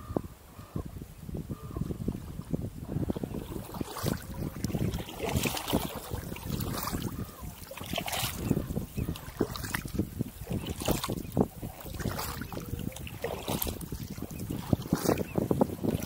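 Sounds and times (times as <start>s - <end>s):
wind rumble on microphone: 0.0s - 16.0s
paddle splashing in water: 2.0s - 16.0s.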